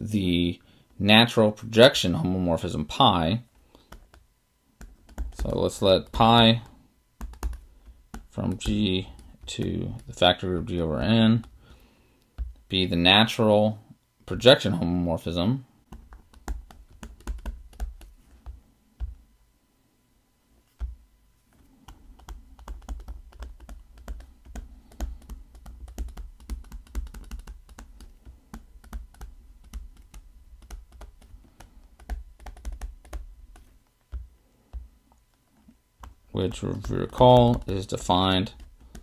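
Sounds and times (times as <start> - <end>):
stylus tapping on tablet screen: 3.8 - 10.2, 12.2 - 12.8, 15.9 - 19.2, 20.7 - 35.4, 36.0 - 39.0.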